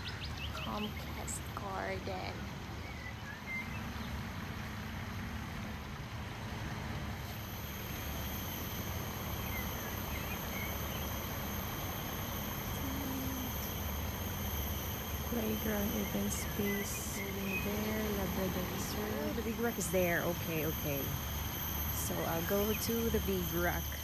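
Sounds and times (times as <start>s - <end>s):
steady low rumble: 0.0s - 24.0s
faint bird chirps: 9.0s - 24.0s.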